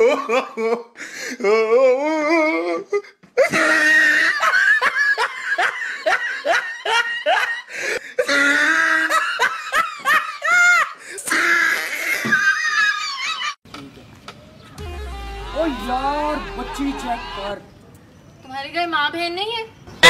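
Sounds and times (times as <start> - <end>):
woman laughing hard: 0.0 - 1.0, 3.4 - 11.0.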